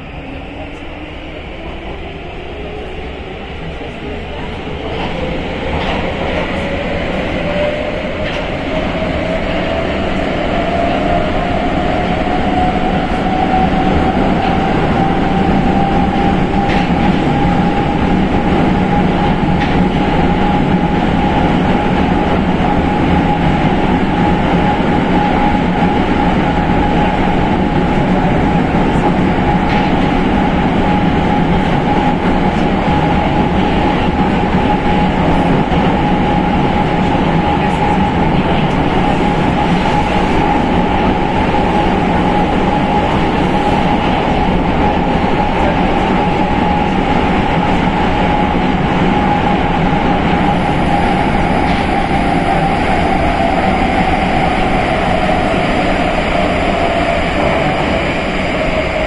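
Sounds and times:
train wheels rumbling on rail: 0:00.0 - 0:59.0
rail joint clicks: 0:04.8 - 0:09.4.

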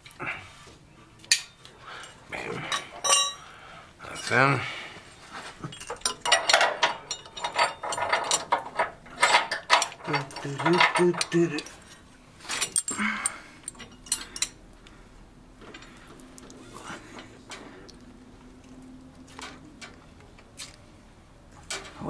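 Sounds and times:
metal bracket clicking and knocking: 0:05.7 - 0:11.8.

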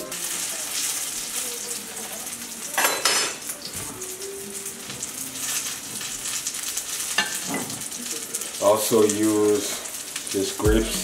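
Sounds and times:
omelette sizzling in oil: 0:00.0 - 0:10.7.

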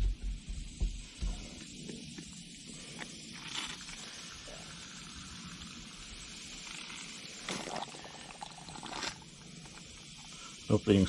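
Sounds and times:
bursts of hiss: 0:00.0 - 0:11.0
faint liquid pouring: 0:02.8 - 0:10.9.

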